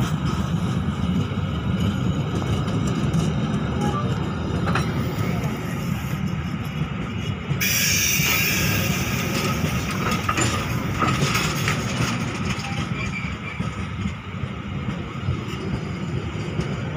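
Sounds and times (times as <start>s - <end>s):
train coaches rolling past: 0.0s - 16.9s
train wheels clacking: 0.0s - 16.9s.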